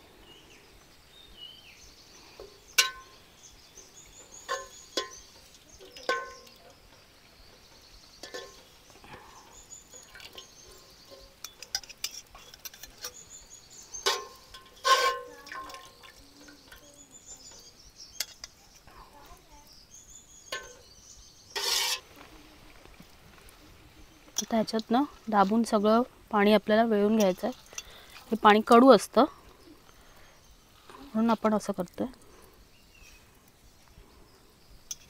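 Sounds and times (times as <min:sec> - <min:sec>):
water pouring and dripping: 0:01.9 - 0:19.8, 0:20.4 - 0:20.9, 0:21.5 - 0:34.1
metal utensils clinking: 0:02.8 - 0:03.2, 0:04.4 - 0:06.8, 0:08.2 - 0:08.7, 0:09.9 - 0:13.2, 0:13.9 - 0:17.6, 0:21.6 - 0:22.1, 0:27.0 - 0:28.8.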